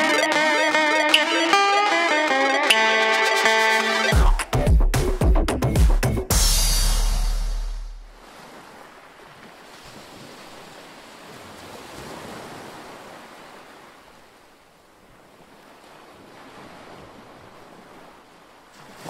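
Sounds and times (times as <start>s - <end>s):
small waves washing onto sand: 8.2s - 19.0s.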